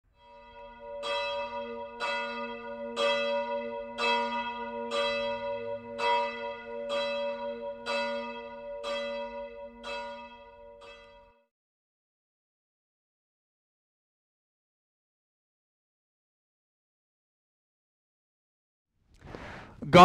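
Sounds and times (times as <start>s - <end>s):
church bell tolling: 0.1s - 11.5s.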